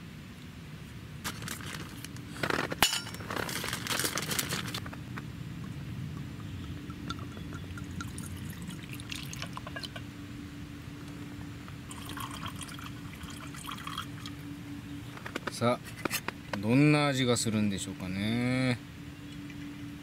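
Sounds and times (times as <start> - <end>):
liquid pouring into a glass: 6.5 - 10.0, 11.9 - 14.4
glass clinking: 6.6 - 8.2, 9.1 - 10.0.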